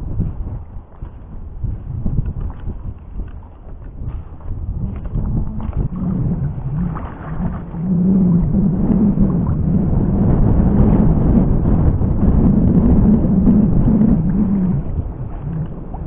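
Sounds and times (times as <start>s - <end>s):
rumbling noise: 4.0s - 16.0s
motor droning: 5.2s - 16.0s.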